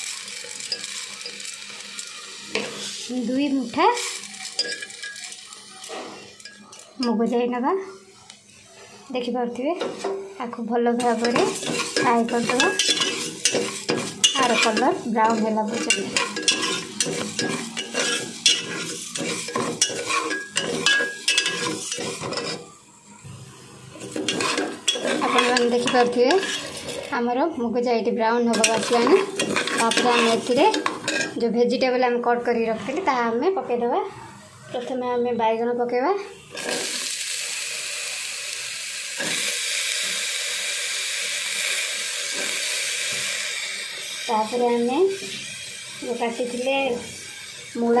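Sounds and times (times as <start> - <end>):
lentils frying in oil: 0.0 - 7.6, 9.0 - 32.0, 34.7 - 48.0
metal ladle scraping a pot: 3.9 - 6.9, 9.8 - 10.3, 11.0 - 22.7, 23.9 - 27.2, 28.5 - 31.4, 36.5 - 37.0.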